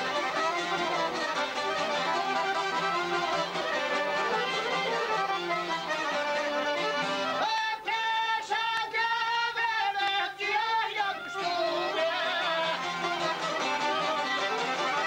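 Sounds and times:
long-necked lutes playing folk music: 0.0 - 7.8, 11.0 - 15.0.

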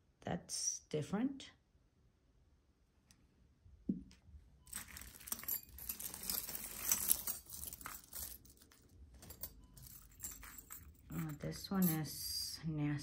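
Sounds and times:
jewelry clinking and rattling: 4.6 - 12.6
plastic crinkling: 4.7 - 8.8.

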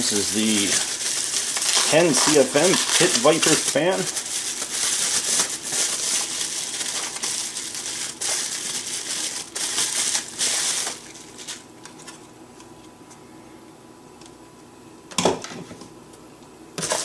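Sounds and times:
bubble wrap crinkling: 0.0 - 12.2.

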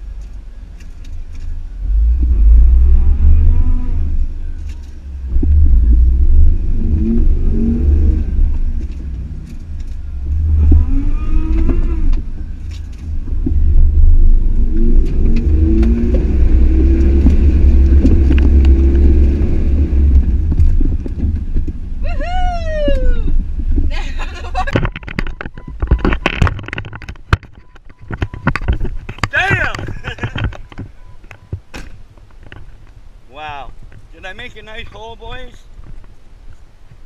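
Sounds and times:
off-road vehicle engine rumbling: 0.0 - 37.0
knocks and clicks: 14.9 - 19.3, 24.6 - 33.0.

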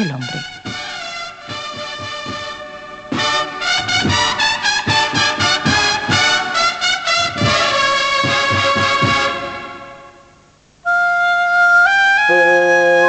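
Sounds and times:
regular drum beats: 0.0 - 10.0
brass band playing a march: 0.0 - 10.2, 11.9 - 13.0.

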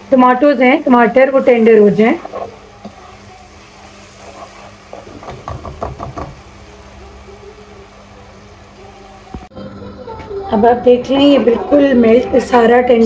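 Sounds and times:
masala cooking in a pot: 0.0 - 10.1
spoon knocking against pot: 5.3 - 6.4.

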